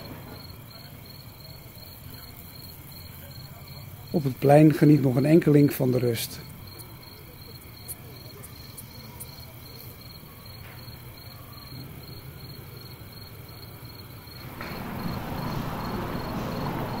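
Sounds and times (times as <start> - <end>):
insect chirping: 0.0 - 17.0
traffic hum: 14.0 - 17.0.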